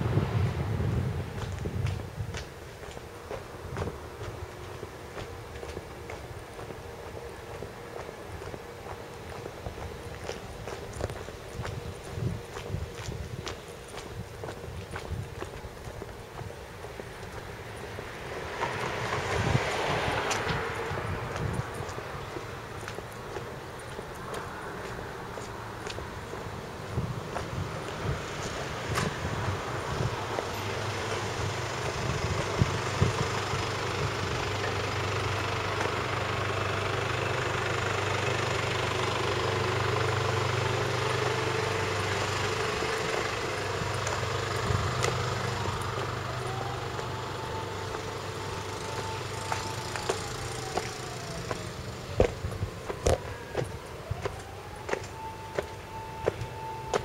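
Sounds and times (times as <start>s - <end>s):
vehicle engine humming: 0.0s - 57.0s.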